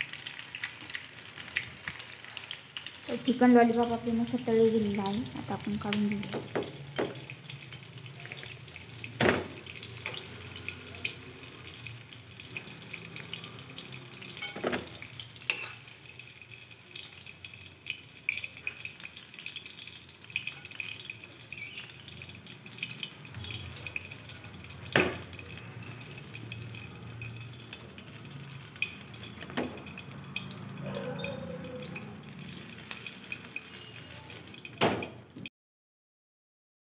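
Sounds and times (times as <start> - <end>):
food deep-frying in oil: 0.0 - 35.5
metal spoon clinking on pan: 11.8 - 17.2, 17.8 - 22.0, 22.7 - 34.8.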